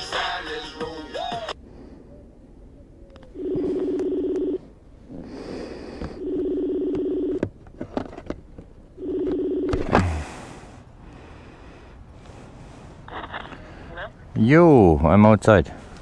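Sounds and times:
phone ringing tone: 0:03.2 - 0:04.8, 0:06.1 - 0:07.5, 0:08.9 - 0:10.1.

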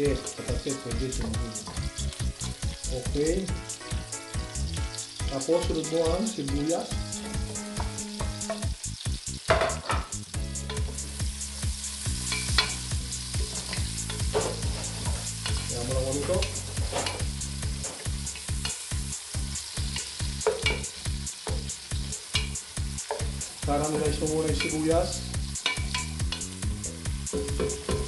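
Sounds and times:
onions sizzling in oil: 0:00.0 - 0:28.0
wooden spatula knocking on pot: 0:20.4 - 0:20.8, 0:27.3 - 0:28.0.

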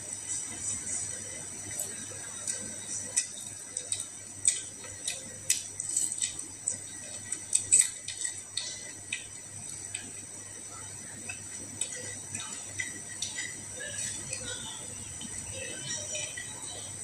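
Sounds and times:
person chewing and mouth clicks: 0:01.7 - 0:10.3.

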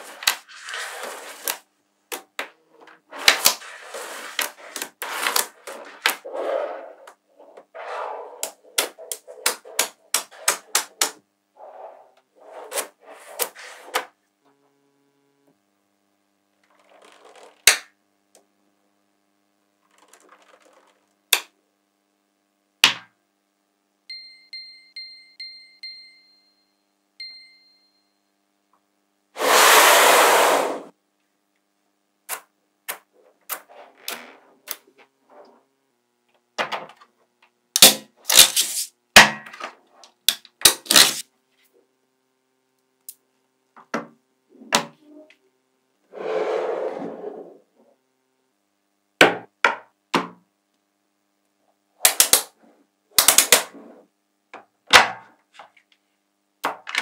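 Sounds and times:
bright chime dings: 0:24.1 - 0:28.2
loud rushing hiss: 0:29.4 - 0:30.9.

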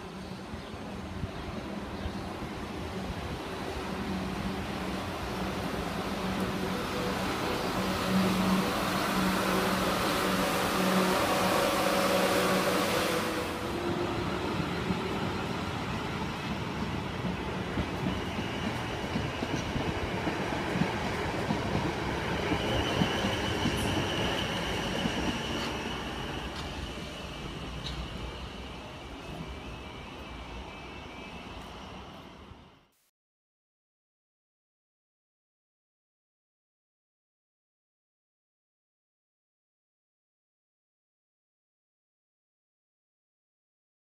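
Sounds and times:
electric train hum and whine: 0:00.0 - 0:32.9
train wheels rumbling on track: 0:00.1 - 0:31.0.

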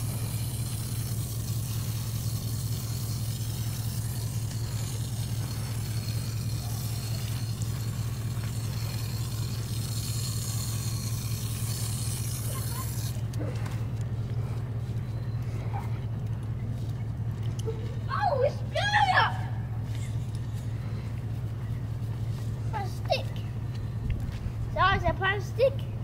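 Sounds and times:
garden hose spraying: 0:00.0 - 0:13.6
low motor hum: 0:00.0 - 0:26.0.

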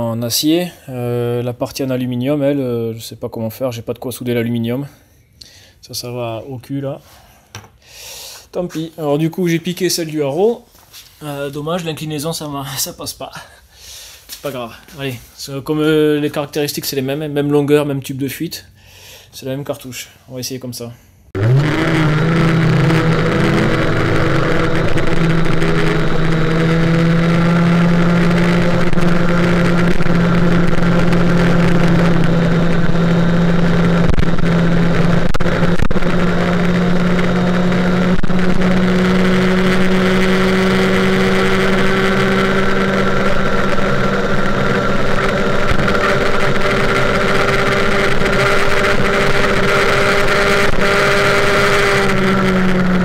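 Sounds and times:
moped engine at full throttle: 0:21.4 - 0:53.0.

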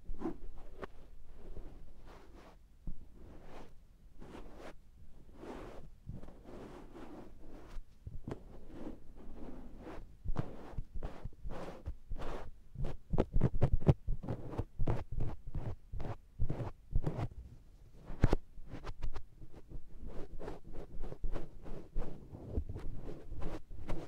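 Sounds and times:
sponge patting microphone: 0:05.6 - 0:17.3, 0:18.1 - 0:24.0.

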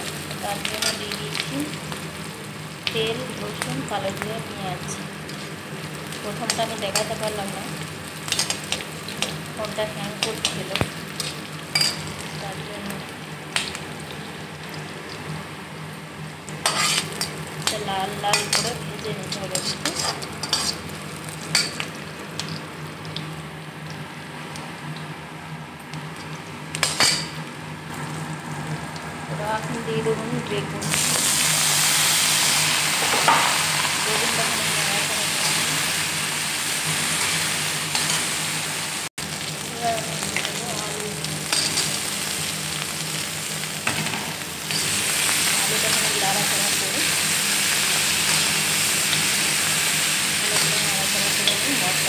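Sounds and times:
onion sizzling in hot oil: 0:00.0 - 0:52.0
metal spatula scraping pan: 0:16.6 - 0:17.2, 0:19.6 - 0:20.8
spoon scraping and clinking pan: 0:16.7 - 0:17.3.

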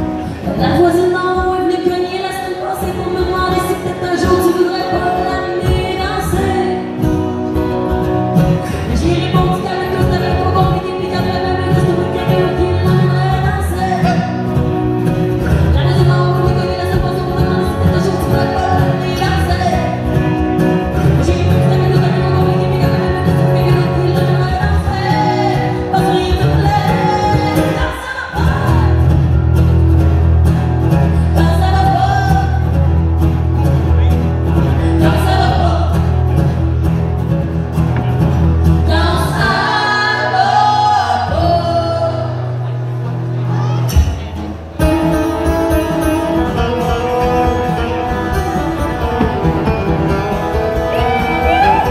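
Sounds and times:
acoustic guitars strumming: 0:00.0 - 0:51.9
woman and man singing: 0:00.2 - 0:07.3, 0:08.6 - 0:14.6, 0:15.4 - 0:29.3, 0:31.1 - 0:32.8, 0:34.7 - 0:36.2, 0:38.8 - 0:42.6.

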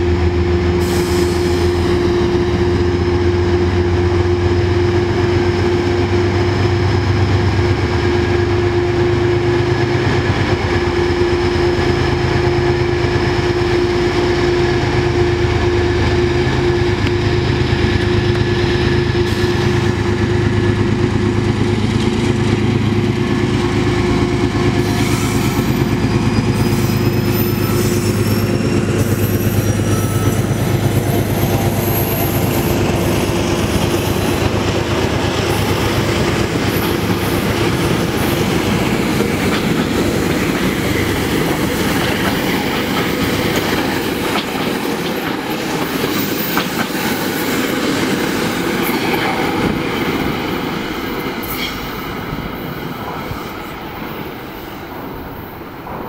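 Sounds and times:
diesel locomotive engine drone: 0:00.0 - 0:56.0
train wheels clattering on rail joints: 0:16.9 - 0:56.0.

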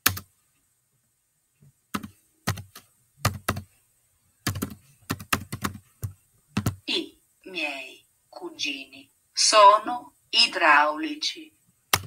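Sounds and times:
fingers tapping on keyboard: 0:00.0 - 0:00.3, 0:01.9 - 0:03.7, 0:04.4 - 0:06.8.

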